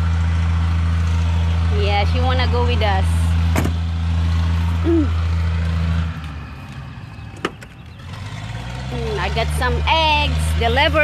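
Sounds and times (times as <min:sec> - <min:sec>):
truck engine idling: 0:00.0 - 0:11.0
low vocal sound: 0:04.8 - 0:05.2.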